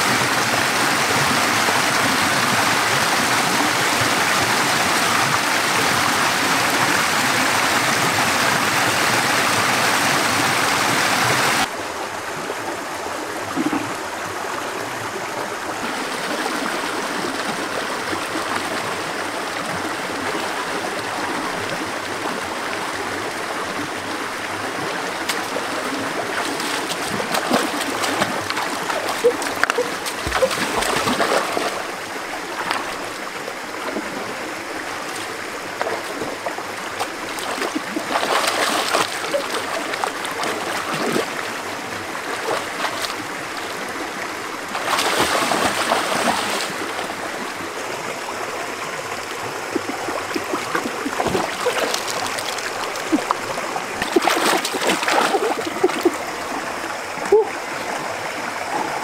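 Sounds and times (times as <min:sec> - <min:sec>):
water splashing: 0:24.8 - 0:58.0
water running: 0:25.3 - 0:33.1.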